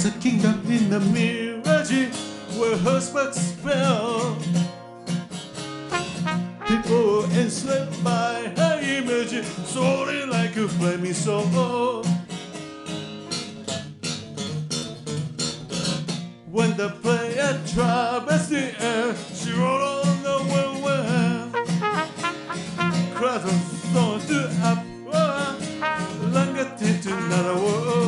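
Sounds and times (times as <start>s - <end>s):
man singing: 0.0s - 4.5s, 6.2s - 12.2s, 16.5s - 28.0s
strummed acoustic guitar: 0.0s - 28.0s.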